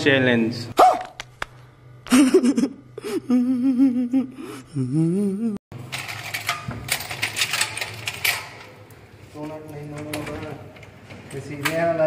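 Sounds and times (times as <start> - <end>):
metal keys rattling in a tin: 5.9 - 8.5.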